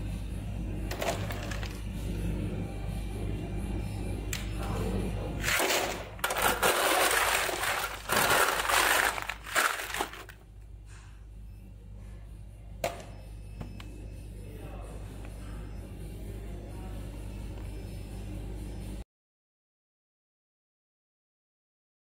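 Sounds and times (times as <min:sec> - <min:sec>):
ice clattering and crunching: 0:05.4 - 0:10.4.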